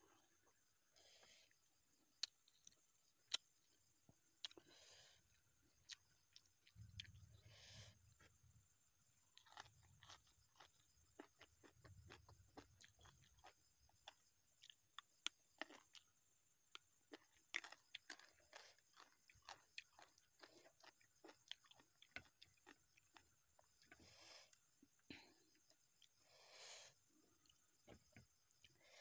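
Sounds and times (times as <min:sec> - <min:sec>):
chewing crunchy raw vegetables: 0:04.3 - 0:05.0, 0:05.8 - 0:26.2.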